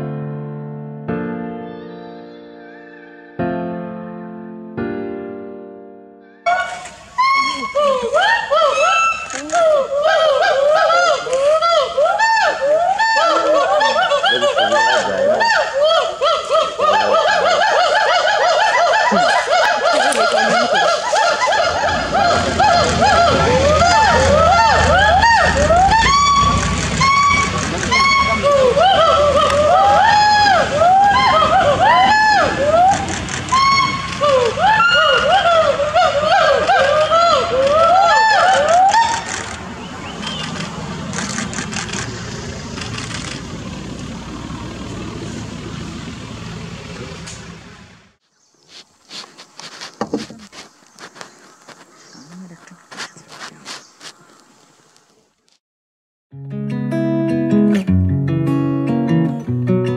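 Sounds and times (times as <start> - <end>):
gibbons whooping calls: 6.3 - 42.0
vehicle engine idling: 21.6 - 48.2.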